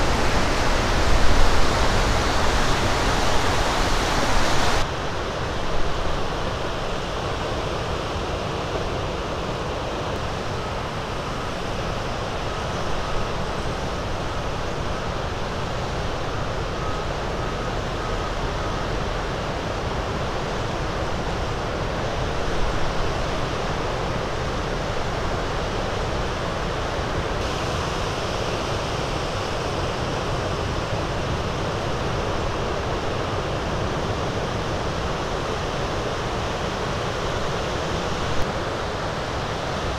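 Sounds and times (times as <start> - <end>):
wind rumbling on microphone: 0.0 - 8.3.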